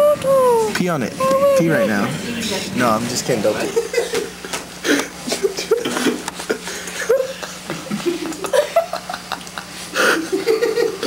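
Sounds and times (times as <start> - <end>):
indistinct voices: 0.0 - 3.5
people laughing: 3.6 - 11.0.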